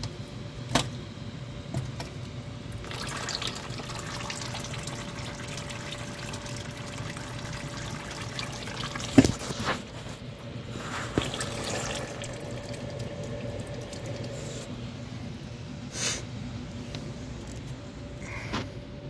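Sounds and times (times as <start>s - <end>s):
fluid trickling into a drain pan: 2.7s - 9.6s, 11.0s - 14.8s.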